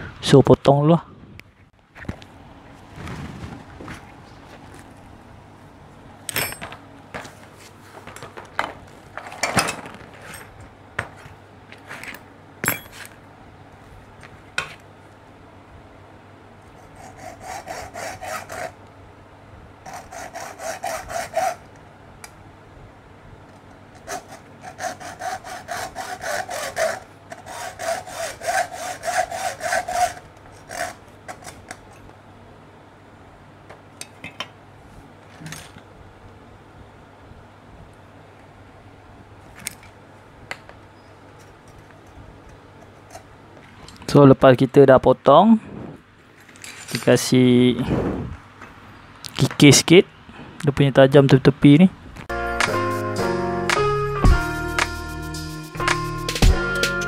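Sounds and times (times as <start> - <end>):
tools knocking and clattering: 6.3 - 7.4, 8.0 - 11.3, 12.0 - 13.2
hacksaw rasping through tubing: 16.8 - 18.8, 19.9 - 21.7, 24.0 - 31.6.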